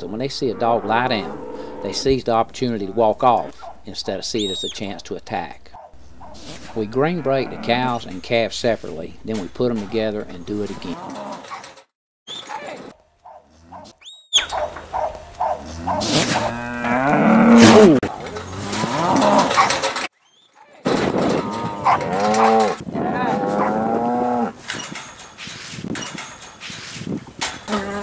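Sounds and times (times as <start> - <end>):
cattle bellowing: 13.3 - 14.0, 14.9 - 19.9, 21.3 - 24.6.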